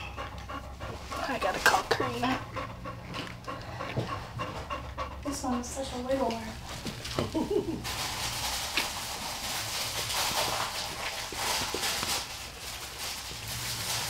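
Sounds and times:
dog panting heavily: 0.0s - 7.2s.

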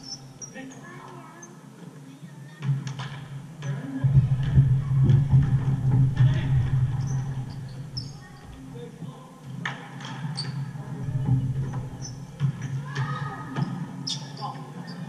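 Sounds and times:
sneakers squeaking: 0.0s - 1.6s, 6.2s - 8.5s, 10.1s - 15.0s
faint echoing voices: 0.0s - 15.0s.

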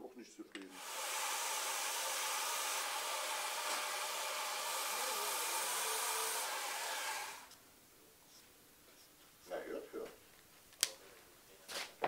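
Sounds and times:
belt sander running: 0.7s - 7.5s
wood being sanded: 0.7s - 7.5s.

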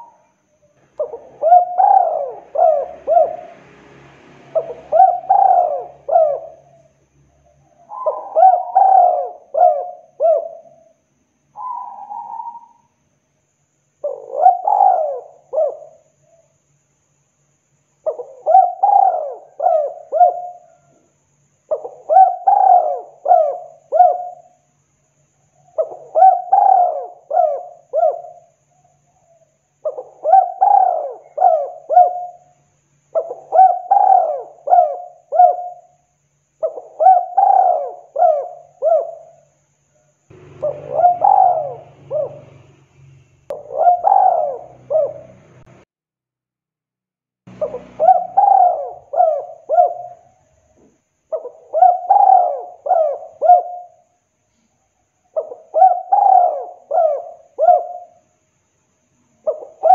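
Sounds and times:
dove cooing: 0.0s - 3.8s, 4.5s - 11.0s, 11.6s - 12.9s, 14.0s - 16.5s, 18.0s - 21.0s, 21.7s - 24.6s, 25.6s - 32.5s, 33.1s - 36.0s, 36.6s - 39.5s, 40.3s - 42.8s, 43.5s - 45.8s, 47.5s - 54.1s, 55.3s - 58.2s, 59.3s - 59.9s.

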